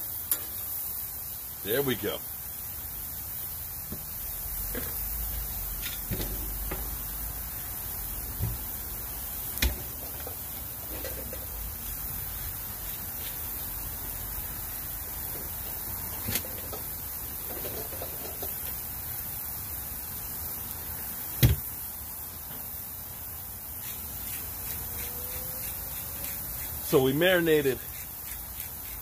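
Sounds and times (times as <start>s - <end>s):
vegetables sizzling on griddle: 0.0s - 29.0s.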